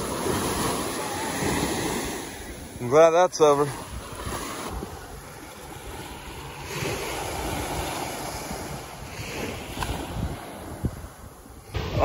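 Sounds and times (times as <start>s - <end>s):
small surf on sandy beach: 0.0s - 12.0s
wind on microphone: 3.7s - 12.0s.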